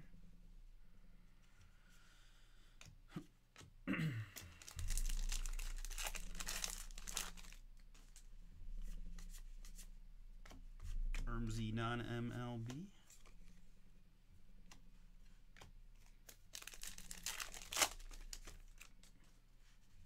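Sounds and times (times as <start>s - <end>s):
wrapper tearing and crinkling: 4.6s - 8.2s, 16.2s - 19.0s.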